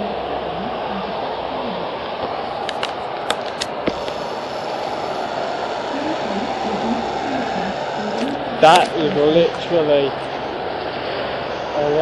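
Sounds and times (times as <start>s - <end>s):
heavy rain: 0.0s - 12.0s
sharp clicks: 2.0s - 4.2s.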